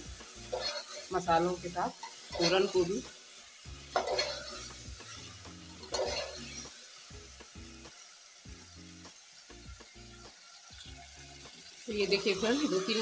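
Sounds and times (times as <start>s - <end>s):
masala sizzling: 0.0s - 13.0s
ladle stirring in pot: 0.5s - 1.1s, 3.9s - 6.6s.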